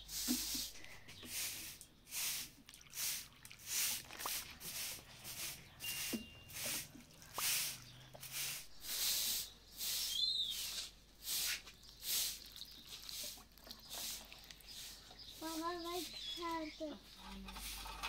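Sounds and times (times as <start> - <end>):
broom sweeping: 0.0 - 18.0
bird chirp: 5.4 - 10.9, 11.6 - 17.6.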